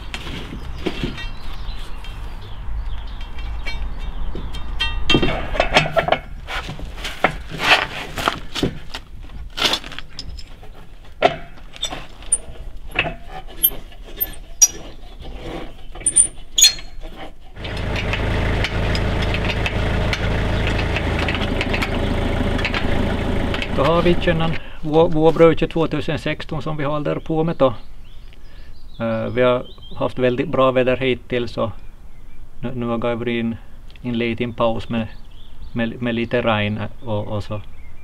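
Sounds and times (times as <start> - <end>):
metal tools knocking on wheel rim: 3.1 - 6.4, 10.1 - 14.9
engine idling: 17.6 - 24.5.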